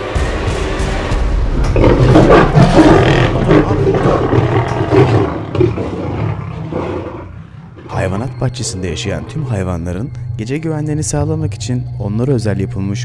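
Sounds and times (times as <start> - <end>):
lion roaring: 1.6 - 9.4.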